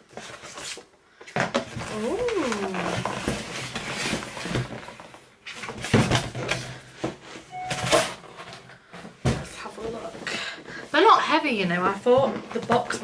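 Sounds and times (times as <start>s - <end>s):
cardboard scraping and rustling: 1.6s - 8.6s.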